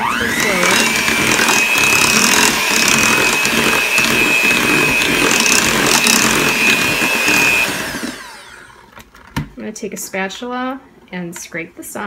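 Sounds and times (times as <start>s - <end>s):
electric hand mixer whining: 0.0s - 9.0s.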